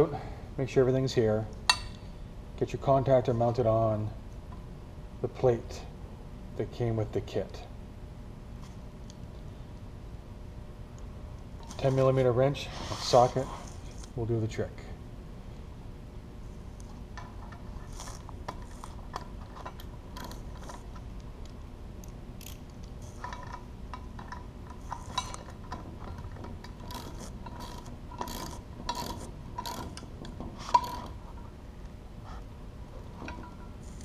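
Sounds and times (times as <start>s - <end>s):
ratchet wrench clicking: 20.2s - 20.4s, 22.4s - 23.6s, 26.8s - 30.0s, 30.7s - 31.1s.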